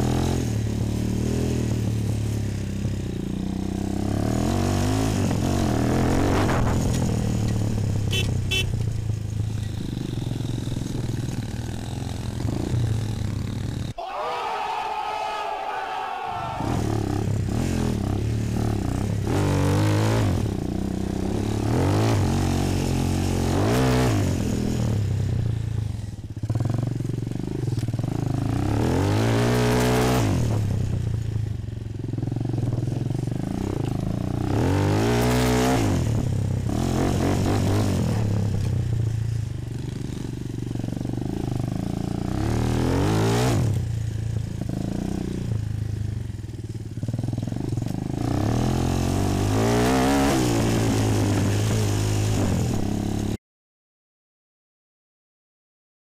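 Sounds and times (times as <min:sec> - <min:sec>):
quad engine revving: 0:16.6 - 0:25.1, 0:28.1 - 0:30.8, 0:33.4 - 0:38.8, 0:41.2 - 0:43.8, 0:47.9 - 0:53.3.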